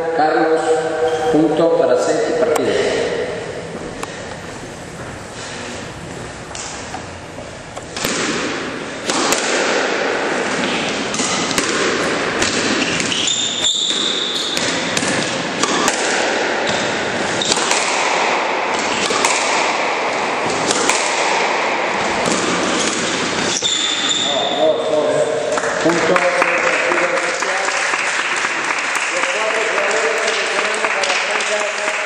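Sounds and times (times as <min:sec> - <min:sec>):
noisy background: 0:00.0 - 0:32.0
short high squeak: 0:01.0 - 0:01.5, 0:23.5 - 0:24.6
squash ball knocks: 0:07.9 - 0:23.5.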